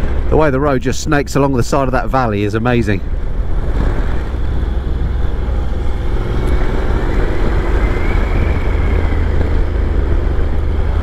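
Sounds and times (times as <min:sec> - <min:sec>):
wind and road noise: 0:00.0 - 0:11.0
motorcycle engine cruising: 0:02.9 - 0:11.0.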